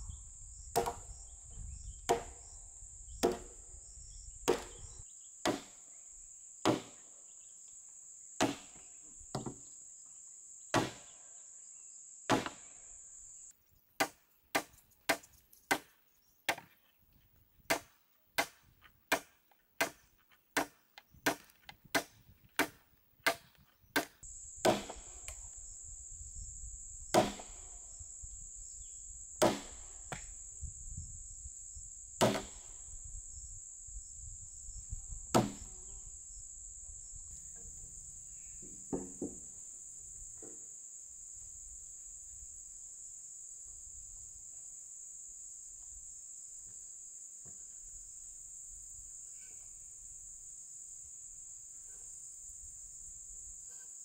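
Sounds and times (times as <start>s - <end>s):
high insect drone: 0.0s - 16.7s, 23.8s - 54.0s
hand tool striking wood: 0.8s - 1.1s, 2.1s - 2.4s, 3.2s - 3.6s, 4.4s - 4.8s, 5.4s - 5.8s, 6.6s - 7.0s, 8.4s - 9.6s, 10.7s - 11.1s, 12.3s - 12.6s, 17.7s - 25.1s, 27.1s - 27.6s, 29.4s - 30.2s, 32.2s - 32.6s, 35.3s - 35.7s, 38.6s - 39.4s.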